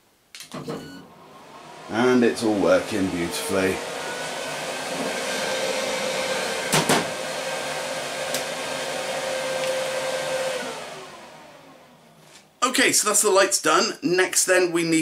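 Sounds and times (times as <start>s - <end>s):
fans running: 0.9s - 13.4s.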